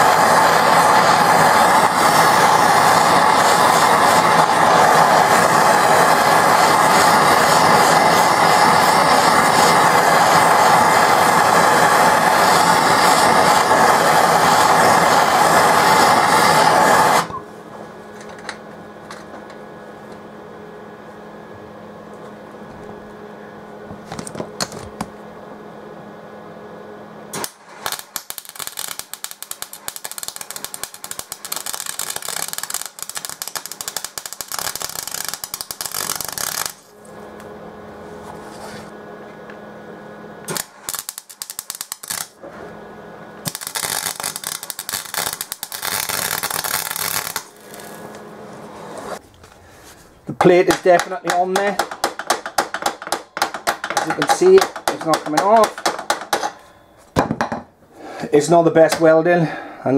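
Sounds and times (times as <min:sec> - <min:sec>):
welding arc crackling: 0:00.0 - 0:17.4, 0:27.4 - 0:37.0, 0:40.4 - 0:42.4, 0:43.4 - 0:48.2, 0:50.2 - 0:56.5
flame hissing: 0:00.0 - 0:17.9, 0:27.3 - 0:37.2, 0:40.4 - 0:42.8, 0:43.4 - 0:51.7.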